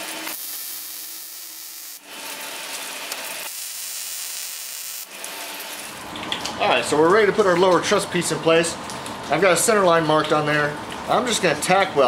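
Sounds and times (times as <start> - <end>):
welding arc hissing: 0.0 - 6.0.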